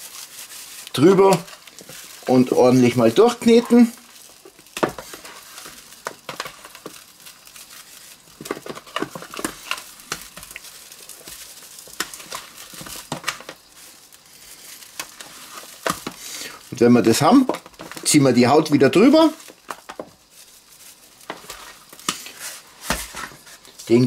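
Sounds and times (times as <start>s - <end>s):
hands kneading meat squelching: 0.0s - 8.4s
paper pouch crinkling: 0.0s - 24.0s.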